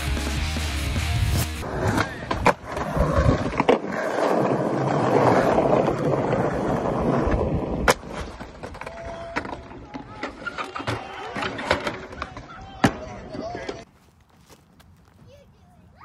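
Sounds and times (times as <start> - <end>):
skateboard wheels rolling on stone: 1.3 - 13.9
skateboard clicks and clack: 1.7 - 13.9.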